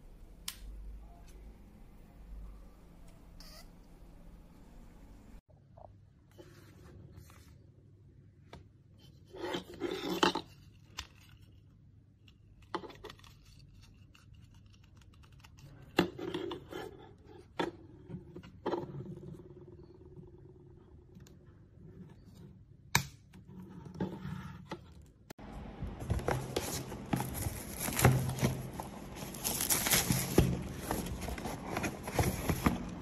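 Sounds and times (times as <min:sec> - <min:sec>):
paper manual rustling: 0:26.0 - 0:33.0
plastic parts scraping and rustling: 0:26.0 - 0:33.0.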